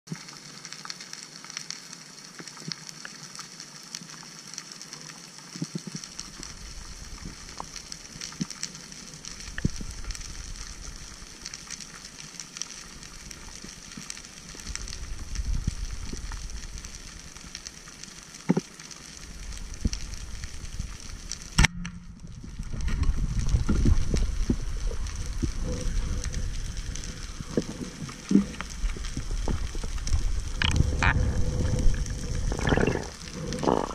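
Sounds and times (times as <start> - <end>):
underwater crackling and clicking: 0.1 - 33.9
low rumbling water swells: 19.2 - 33.9.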